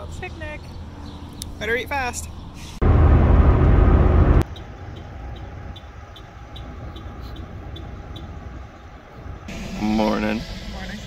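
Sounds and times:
car road and engine rumble: 0:00.0 - 0:11.0
low hum: 0:02.8 - 0:04.4.

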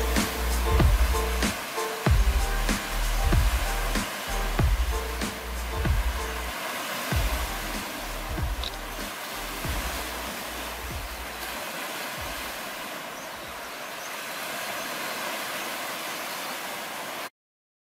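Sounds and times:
ocean surf washing onto beach: 0:00.0 - 0:17.3
wind rumble on microphone: 0:07.1 - 0:11.5.

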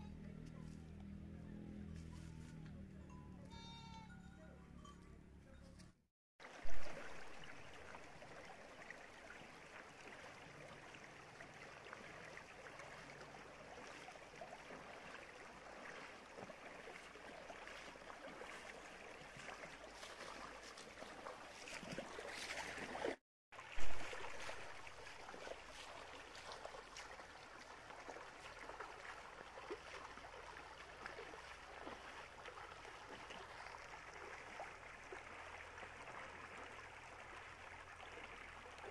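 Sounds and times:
stream running over stones: 0:06.4 - 0:38.9
splashing steps in water: 0:09.8 - 0:34.6.

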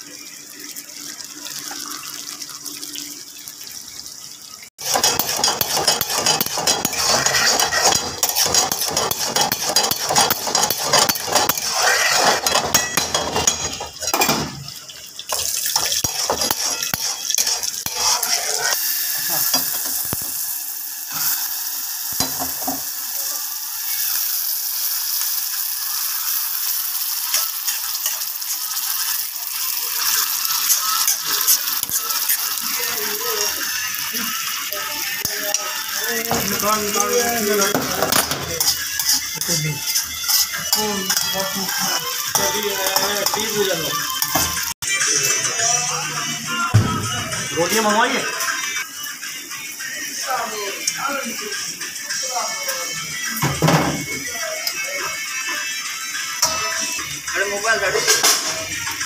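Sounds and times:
meat sizzling in a pan: 0:00.0 - 0:46.8, 0:47.5 - 0:59.0
metal spoon scraping a pan: 0:04.8 - 0:20.3, 0:27.2 - 0:28.9, 0:30.0 - 0:33.8, 0:35.2 - 0:45.4.

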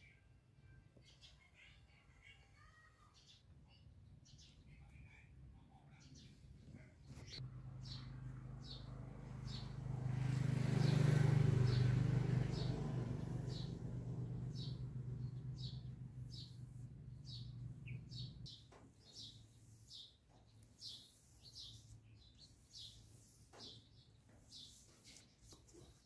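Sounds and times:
small bird chirping: 0:07.1 - 0:26.0
passing vehicle engine hum: 0:07.4 - 0:18.5.

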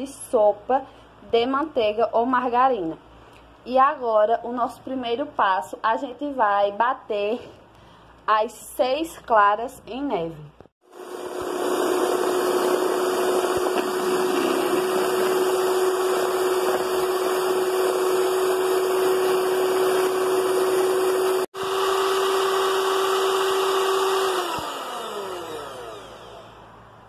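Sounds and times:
electric hand mixer whining: 0:10.8 - 0:26.8.

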